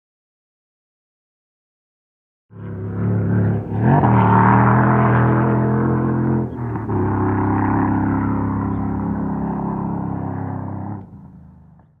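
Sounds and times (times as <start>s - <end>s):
vehicle engine running: 2.5s - 12.0s.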